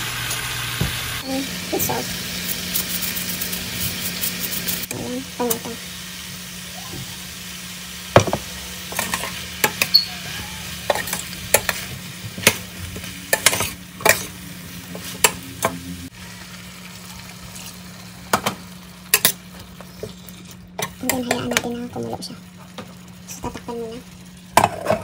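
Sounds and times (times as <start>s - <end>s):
food sizzling: 0.0s - 25.0s
metal spoon scraping frying pan: 8.9s - 12.6s, 13.3s - 15.8s.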